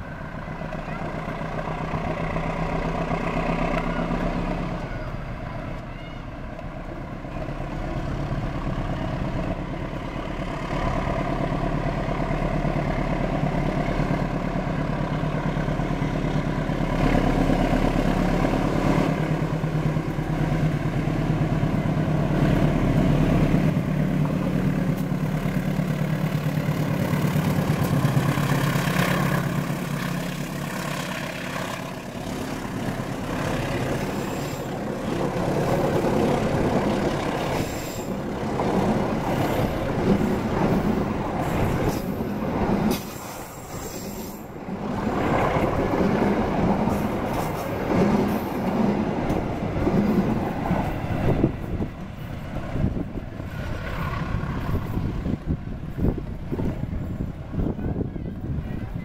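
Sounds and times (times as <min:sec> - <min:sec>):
locomotive engine droning: 0:00.0 - 0:59.0.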